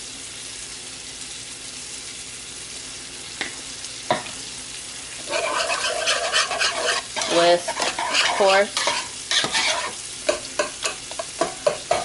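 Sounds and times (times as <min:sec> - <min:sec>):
sizzling hiss of cooking: 0:00.0 - 0:12.0
spoon stirring thick puree: 0:05.3 - 0:12.0.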